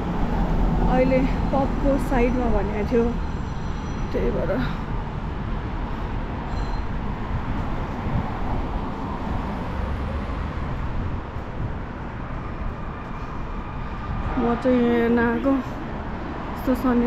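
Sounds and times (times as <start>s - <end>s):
cars passing on street: 0.0s - 17.0s.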